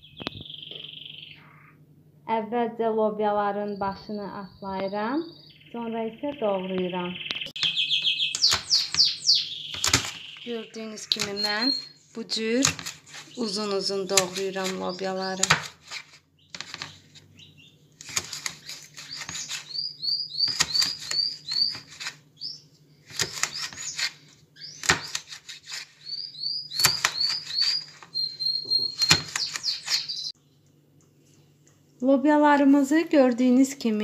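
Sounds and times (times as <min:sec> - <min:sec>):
bird chirping: 0:00.0 - 0:01.8, 0:03.6 - 0:30.8
knife chopping on plastic board: 0:07.6 - 0:10.4, 0:11.0 - 0:11.8, 0:12.5 - 0:17.0, 0:18.0 - 0:19.7, 0:20.4 - 0:22.2, 0:23.1 - 0:24.2, 0:24.8 - 0:25.9, 0:26.7 - 0:28.1, 0:28.8 - 0:30.3.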